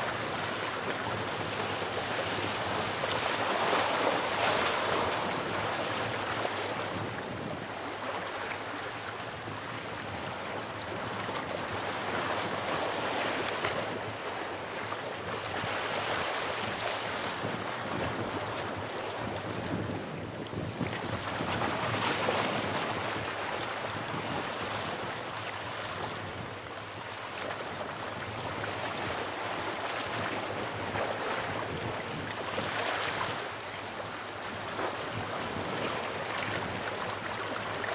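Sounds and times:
sea waves washing over rocks: 0.0 - 8.8.

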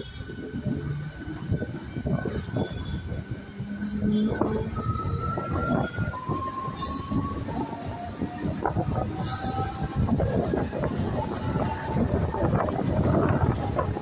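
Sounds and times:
train coach rumbling and clattering: 0.0 - 14.0
train wheels squealing: 2.1 - 8.1, 9.0 - 14.0.

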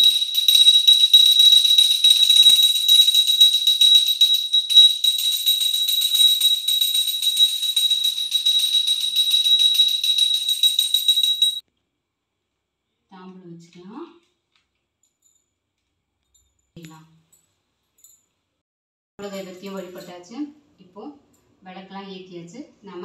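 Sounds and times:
brass hand bell ringing rapidly: 0.0 - 11.6.

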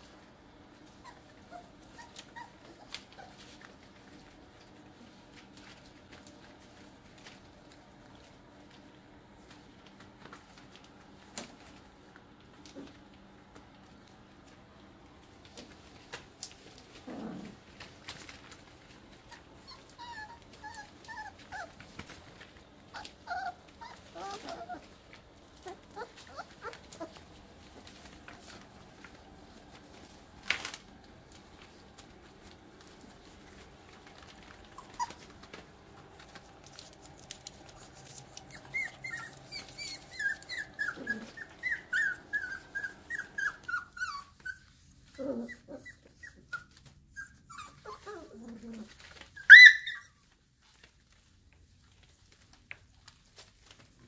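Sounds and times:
puppies whimpering and squeaking: 0.8 - 4.8, 19.2 - 28.4, 34.1 - 35.6, 37.1 - 50.8
puppy yelp: 0.9 - 3.7, 19.3 - 22.2, 22.9 - 24.9, 25.6 - 27.2, 34.6 - 35.4, 37.7 - 50.4
puppy grunts: 38.5 - 42.1.

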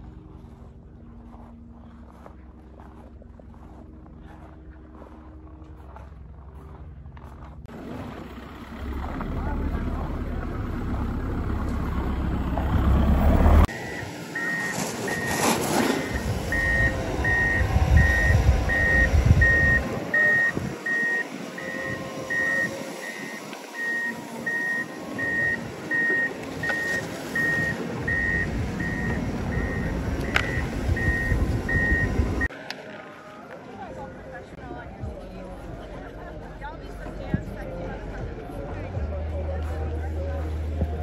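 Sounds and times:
engine hum: 0.0 - 32.9
reversing alarm beeping: 13.2 - 32.5.

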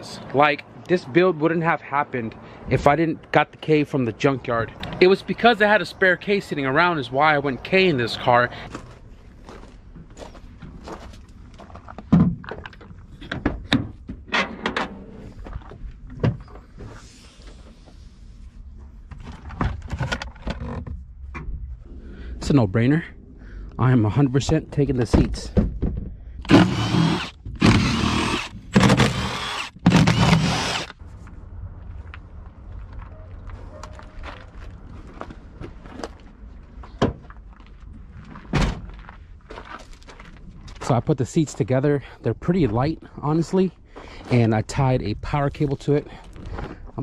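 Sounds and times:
cordless power tool whining: 26.4 - 31.0.

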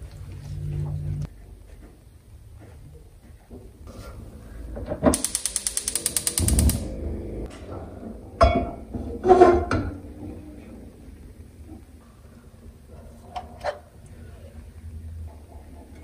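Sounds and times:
rapid mechanical clicks: 5.2 - 7.0.

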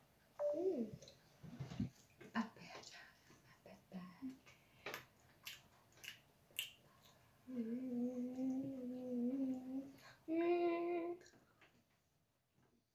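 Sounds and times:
child singing held notes: 7.5 - 11.2.

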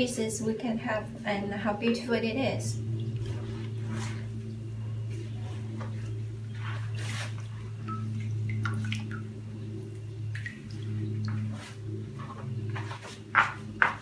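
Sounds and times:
steady low hum: 0.0 - 14.0
dye dripping and splashing: 2.8 - 12.4.

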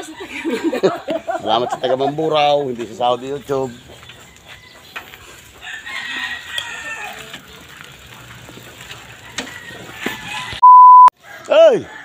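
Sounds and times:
rooster crowing: 5.6 - 7.3, 9.1 - 10.6, 11.2 - 12.0.

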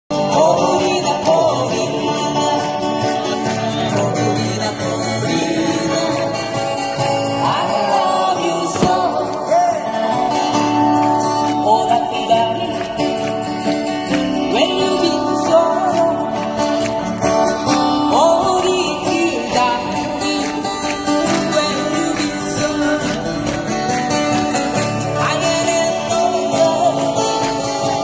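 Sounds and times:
acoustic guitars strummed: 0.1 - 28.0
person singing: 0.1 - 28.0.

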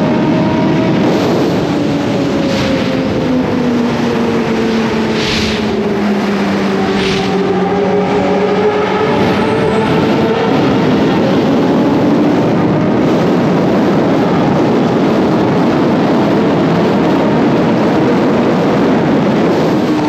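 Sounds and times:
motorcycle engine cruising: 0.0 - 14.8
wind rush on microphone: 0.0 - 20.0.

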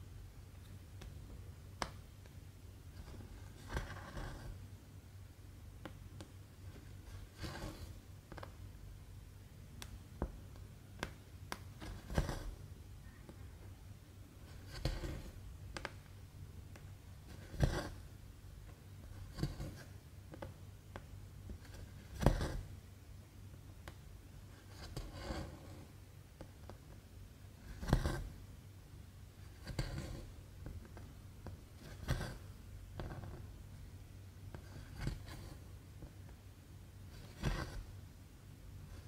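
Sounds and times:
faint low hum: 0.0 - 39.0
needle and thread rasping through cloth: 6.8 - 8.0, 11.8 - 12.6, 14.4 - 15.4, 24.5 - 25.9, 31.8 - 33.4, 37.1 - 37.9.

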